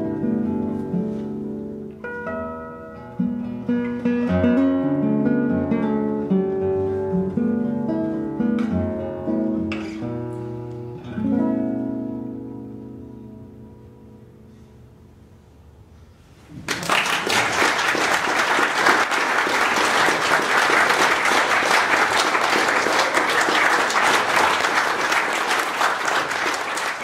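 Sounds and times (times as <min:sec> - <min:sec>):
audience applause: 0:16.6 - 0:27.0.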